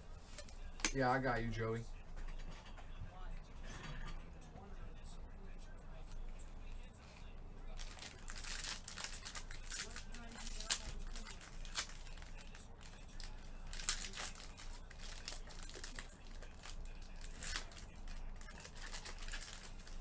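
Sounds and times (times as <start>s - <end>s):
foil wrappers crinkling and tearing: 7.8s - 20.0s.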